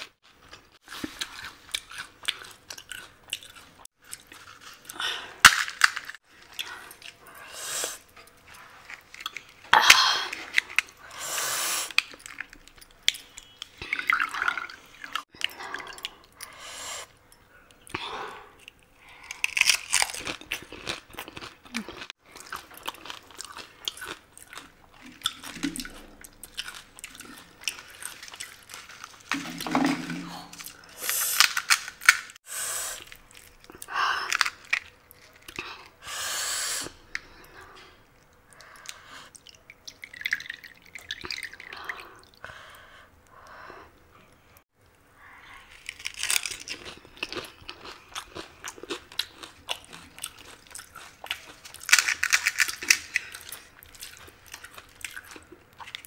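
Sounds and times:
crisp shells crunching: 25.6 - 29.7, 33.0 - 35.6, 45.7 - 56.0
wet chewing: 45.7 - 56.0.

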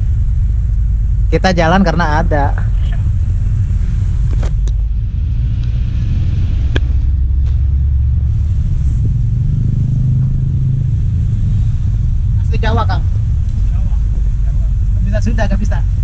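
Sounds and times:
minibus engine and road rumble: 0.0 - 16.0.

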